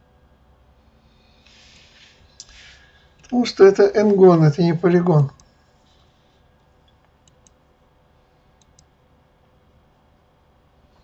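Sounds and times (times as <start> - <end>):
computer mouse clicks: 6.9 - 7.6, 8.6 - 8.9.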